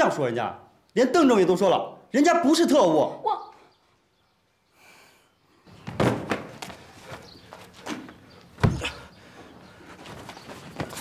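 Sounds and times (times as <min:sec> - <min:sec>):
thuds and knocks: 0:05.8 - 0:06.8, 0:08.6 - 0:09.0.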